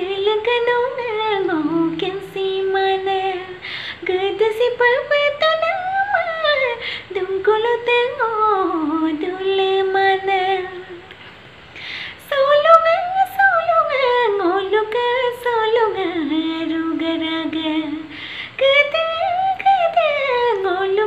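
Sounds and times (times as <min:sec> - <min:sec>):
woman singing unaccompanied: 0:00.0 - 0:11.1, 0:12.1 - 0:21.0
singer breathing: 0:03.6 - 0:04.0, 0:06.8 - 0:07.1, 0:11.6 - 0:12.2, 0:18.1 - 0:18.6.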